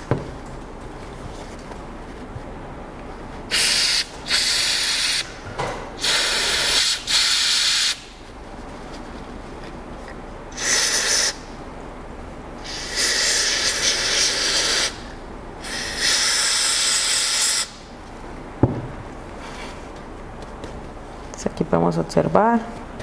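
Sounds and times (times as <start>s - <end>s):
aerosol spray hissing: 3.5s - 5.2s, 6.0s - 8.0s, 10.6s - 11.4s, 12.6s - 15.0s, 15.6s - 17.8s.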